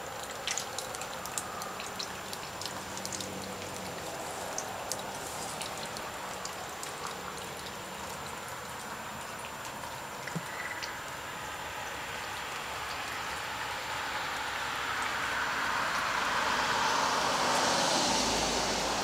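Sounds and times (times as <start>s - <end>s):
water running and splashing: 0.0s - 19.0s
crackling ticks: 0.2s - 8.2s.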